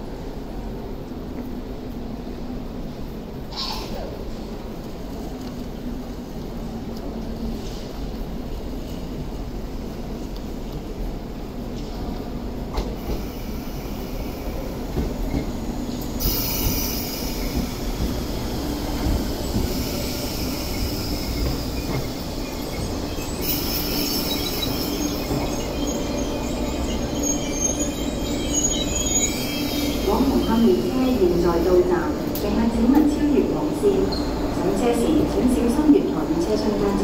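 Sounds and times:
train steady hum: 0.0s - 37.0s
train wheels rumbling: 3.5s - 37.0s
wheel and brake squeal: 19.4s - 30.7s.

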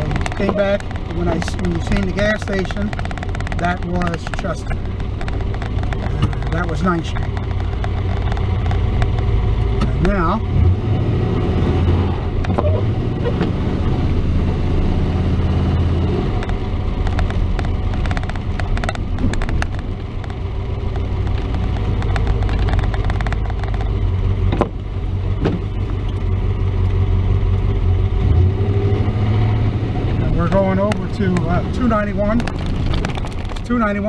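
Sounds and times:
pickup engine drone and road noise: 0.0s - 34.0s.

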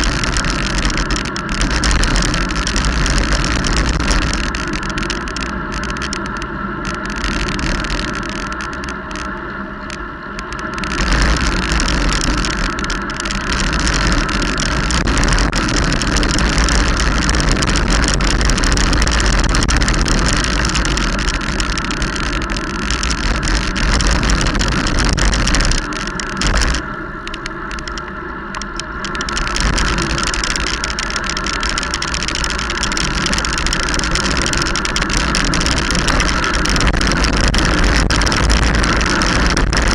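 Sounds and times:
tyre noise on wet road: 0.0s - 39.9s
wind buffeting microphone: 10.7s - 28.0s, 28.6s - 39.9s.

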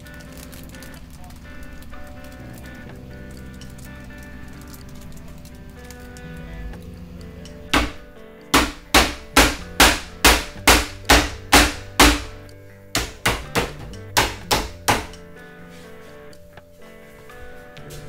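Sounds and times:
hammer striking wooden board: 7.7s - 12.4s, 13.0s - 15.2s.

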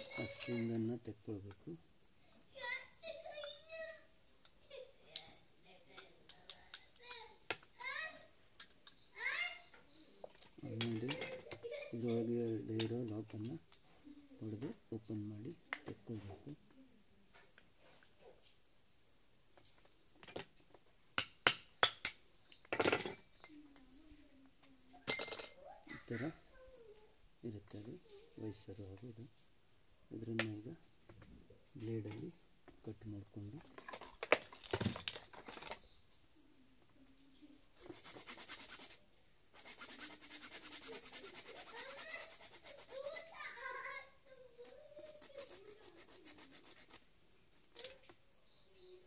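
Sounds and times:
blade sawing: 39.6s - 43.2s.

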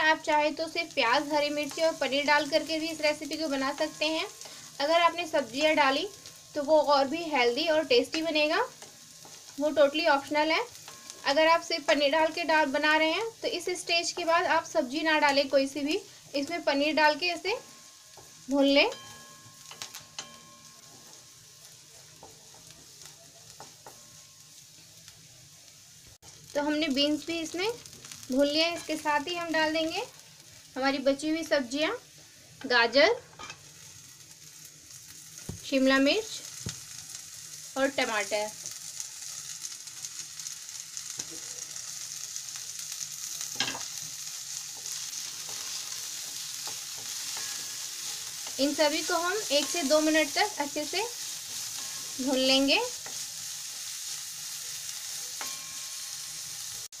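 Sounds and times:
vegetables sizzling in oil: 0.0s - 57.0s
spatula scraping a pan: 43.5s - 48.6s.

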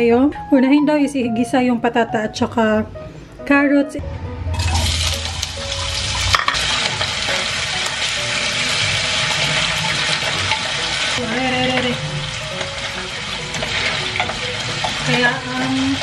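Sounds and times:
potatoes sizzling in hot oil: 4.8s - 16.0s
wooden spatula stirring: 8.6s - 16.0s.

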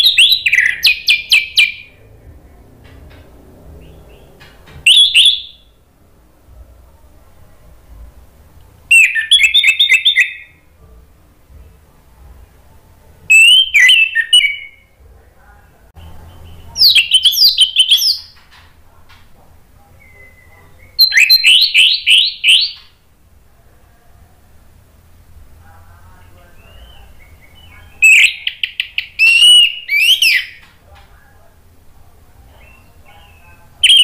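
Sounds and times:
thrush singing whistled notes: 0.0s - 2.0s, 3.8s - 5.8s, 8.9s - 10.6s, 13.3s - 14.9s, 16.3s - 18.4s, 20.0s - 22.9s, 26.6s - 30.6s, 32.6s - 34.0s.

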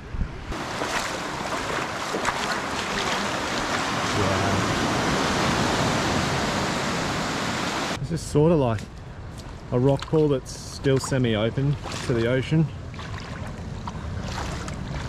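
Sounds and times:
small waves washing over rocks: 0.5s - 8.0s.

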